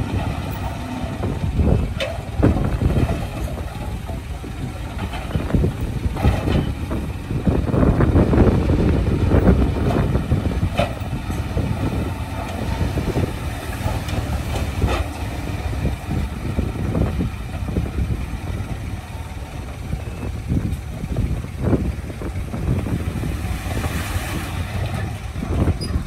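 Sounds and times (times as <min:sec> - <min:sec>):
diesel engine rumbling: 0:00.0 - 0:26.0.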